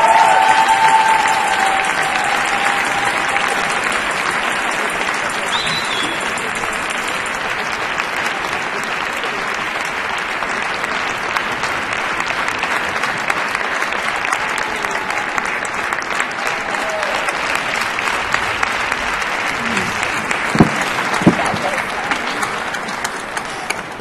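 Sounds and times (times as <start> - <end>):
audience applauding: 0.0 - 24.0.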